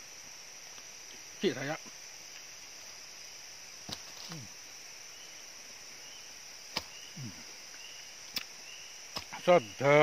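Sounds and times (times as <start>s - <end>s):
forest insects droning: 0.0s - 10.0s
man humming mm: 7.1s - 7.5s.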